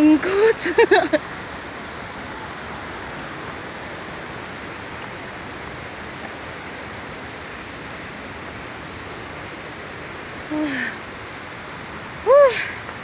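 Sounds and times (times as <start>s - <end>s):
waterfall rushing: 0.0s - 13.0s.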